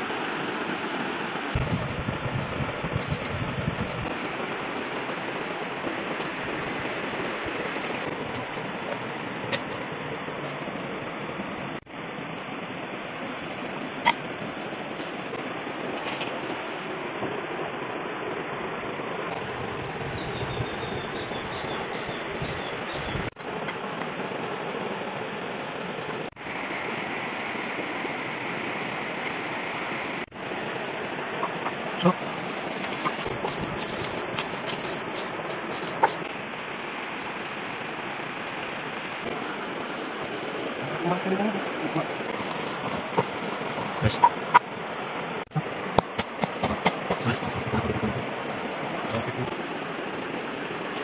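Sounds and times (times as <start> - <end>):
kitchen utensils clicking: 32.6 - 36.2, 42.3 - 44.6
river water rushing: 34.2 - 51.0.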